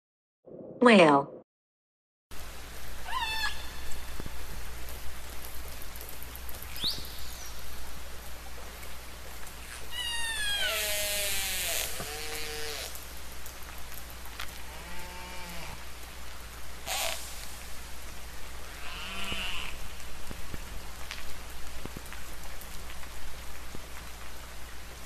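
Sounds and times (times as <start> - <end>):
whale calls: 3.0 - 3.9, 9.9 - 12.9, 18.7 - 19.8.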